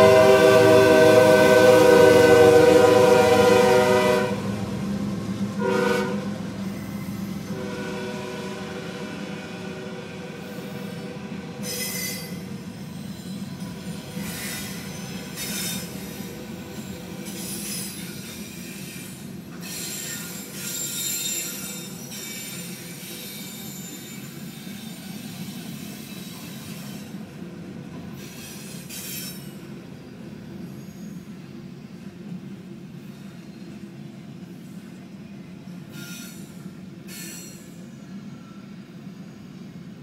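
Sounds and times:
train wheels rumbling on rail: 0:00.0 - 0:40.0
high-pitched wheel squeals: 0:11.6 - 0:16.2, 0:16.8 - 0:27.1.

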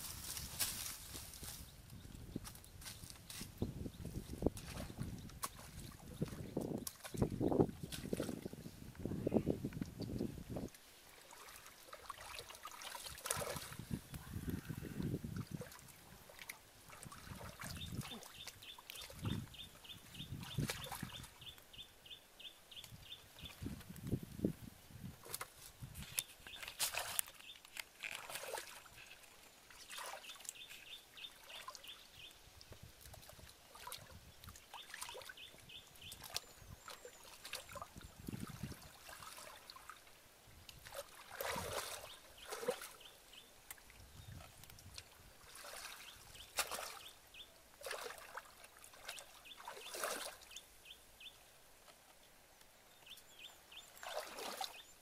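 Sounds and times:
water sloshing and splashing: 0:04.2 - 0:08.6, 0:09.8 - 0:21.6, 0:25.2 - 0:31.9, 0:32.6 - 0:50.7, 0:53.9 - 0:55.0.

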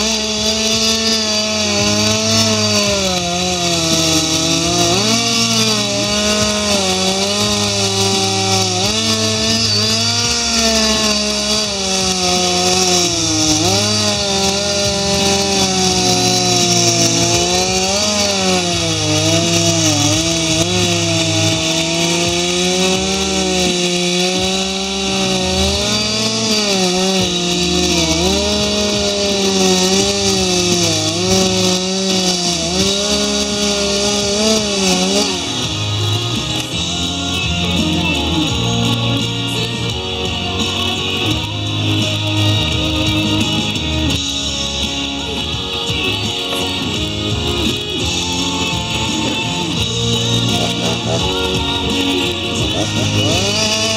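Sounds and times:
chainsaw cutting wood: 0:00.0 - 0:53.9.

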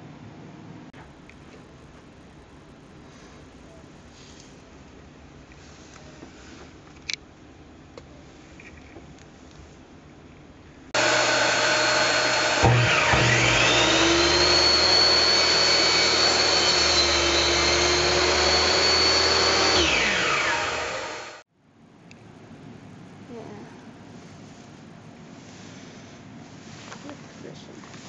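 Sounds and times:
steady machine noise: 0:01.0 - 0:05.0, 0:11.0 - 0:25.5
electric drill whining: 0:11.0 - 0:21.5.

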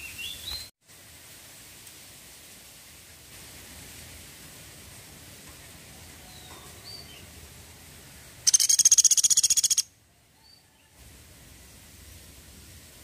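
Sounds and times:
woodpecker rattling call: 0:08.4 - 0:09.9.

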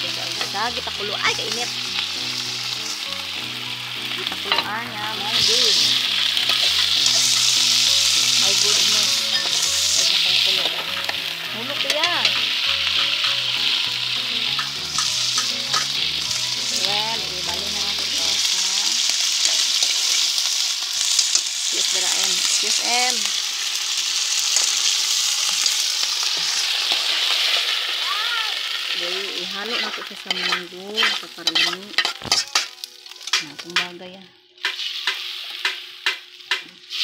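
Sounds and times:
fish sizzling in hot oil: 0:00.0 - 0:37.0
metal spoon scraping a pan: 0:04.1 - 0:21.4, 0:29.4 - 0:33.9.

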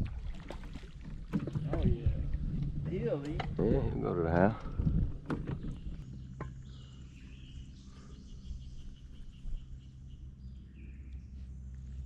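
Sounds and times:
steady low hum: 0:00.0 - 0:12.0
birds chirping: 0:02.9 - 0:12.0.

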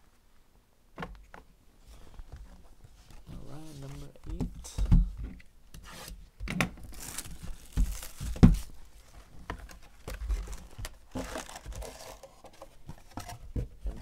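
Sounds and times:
wrappers and cardboard crinkling: 0:02.0 - 0:05.1, 0:06.8 - 0:14.0
knocks and thumps: 0:04.2 - 0:05.4.

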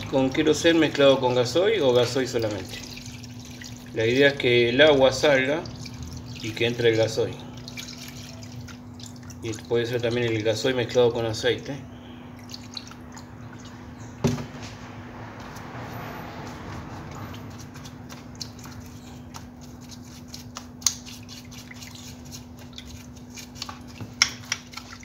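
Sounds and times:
metal parts brushed in liquid: 0:05.0 - 0:10.7, 0:16.4 - 0:25.0.

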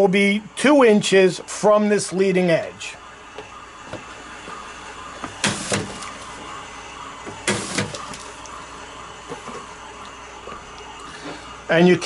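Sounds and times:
conveyor humming: 0:00.0 - 0:12.0
label applicator whir and snap: 0:05.2 - 0:06.3, 0:07.2 - 0:08.6.

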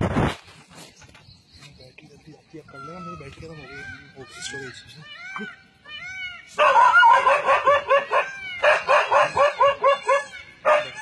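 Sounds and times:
dog barking: 0:06.6 - 0:11.0.

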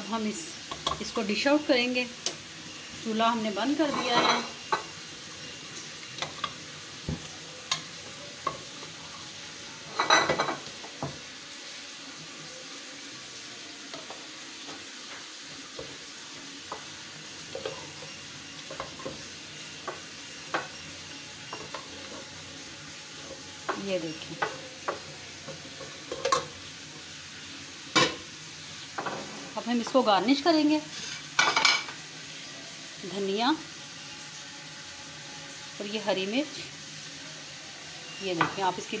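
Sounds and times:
spatula scraping a metal pot: 0:30.8 - 0:31.4.

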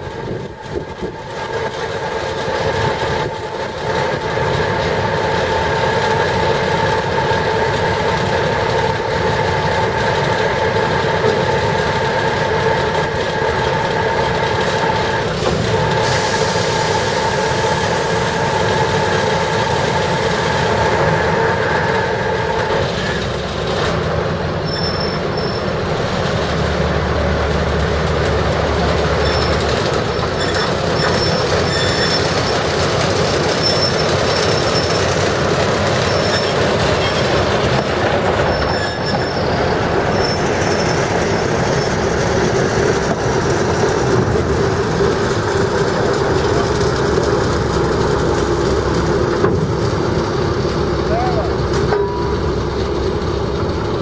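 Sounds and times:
diesel locomotive engine hum: 0:00.0 - 0:54.0
wheels rumbling on rail: 0:00.0 - 0:54.0
high wheel squeals: 0:21.4 - 0:23.4, 0:24.6 - 0:25.8, 0:29.2 - 0:42.2, 0:51.1 - 0:52.6.

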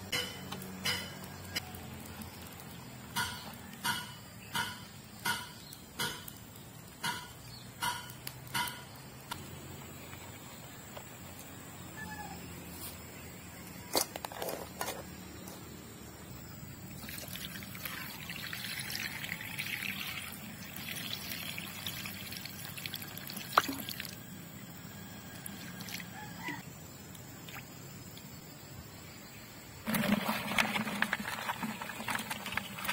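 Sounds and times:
crabs knocking against pot: 0:03.1 - 0:06.4, 0:07.0 - 0:09.0
water pouring into metal pot: 0:17.0 - 0:24.2.

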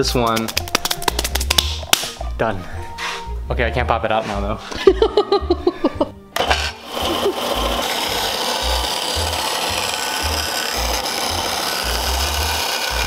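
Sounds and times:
disc sander grinding acrylic: 0:06.4 - 0:13.0.

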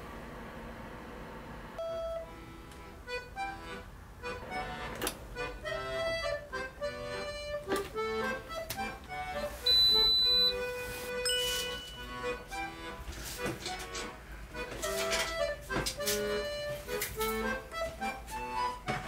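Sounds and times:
lower electronic beep: 0:01.8 - 0:02.2, 0:09.7 - 0:10.6
accordion music: 0:01.8 - 0:19.0
high electronic beep: 0:09.7 - 0:10.6, 0:11.2 - 0:12.3.

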